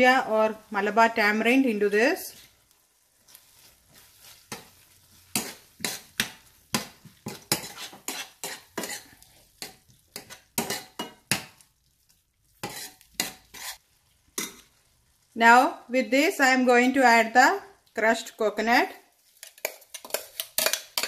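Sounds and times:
curry sizzling faintly: 0.0 - 21.0
metal spoon scraping a pan: 3.3 - 11.6, 12.6 - 14.8, 19.3 - 21.0.

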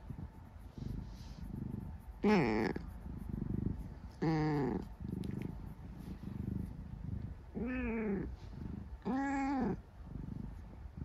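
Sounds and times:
cat low murmur: 0.0 - 11.0
cat purring: 0.0 - 11.0.

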